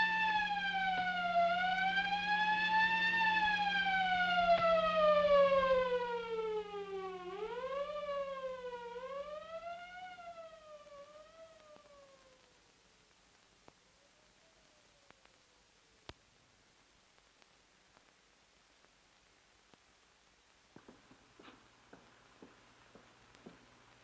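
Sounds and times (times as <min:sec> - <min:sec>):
ambulance siren wailing: 0:00.0 - 0:12.4.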